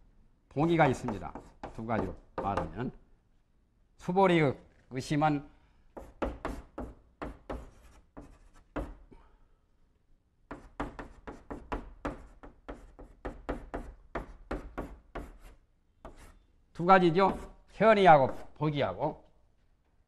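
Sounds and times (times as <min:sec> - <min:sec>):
chalk tapping and scraping on blackboard: 0:00.6 - 0:02.7, 0:05.9 - 0:09.0, 0:10.5 - 0:16.4, 0:17.2 - 0:17.6.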